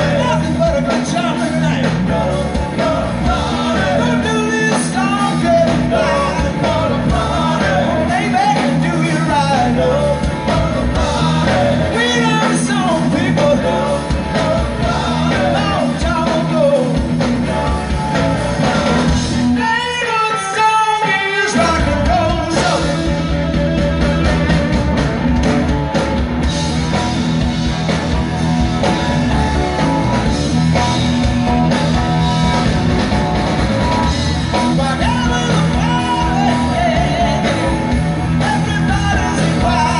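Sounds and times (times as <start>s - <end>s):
lead singer singing: 0.0s - 25.0s, 34.0s - 39.9s
live rock band playing: 0.0s - 39.9s.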